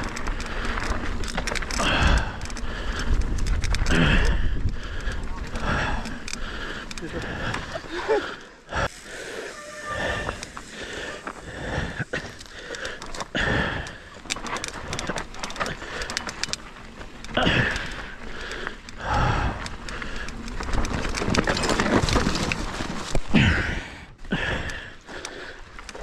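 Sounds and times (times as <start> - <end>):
bike rattling over stones: 0.0 - 26.0
wind on camera: 1.8 - 6.1.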